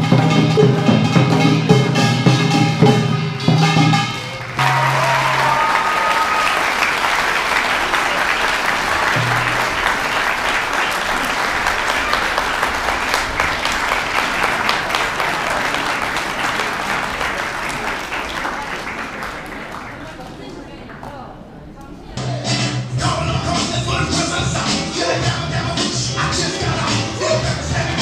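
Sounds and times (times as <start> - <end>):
audience applauding: 4.2 - 21.2.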